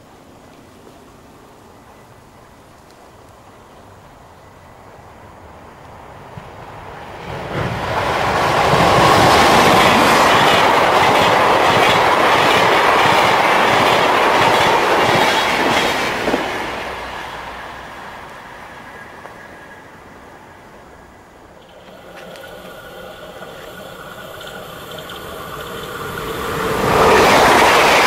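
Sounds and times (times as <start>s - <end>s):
electric train passing: 3.5s - 28.0s
wheels clattering over rail joints: 21.6s - 28.0s.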